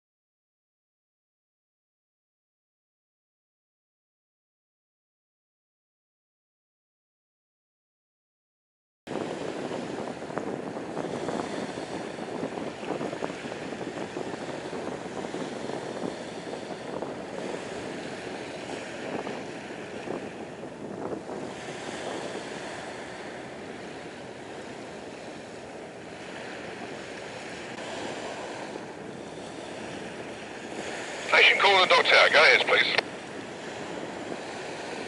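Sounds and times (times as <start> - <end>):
wind on microphone: 9.1 - 31.3, 33.0 - 35.0
small waves washing on shore: 9.1 - 35.0.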